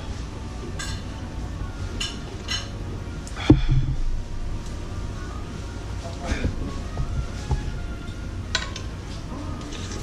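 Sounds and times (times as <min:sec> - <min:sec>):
ceramic bowl thudding on table: 0:03.5 - 0:04.2.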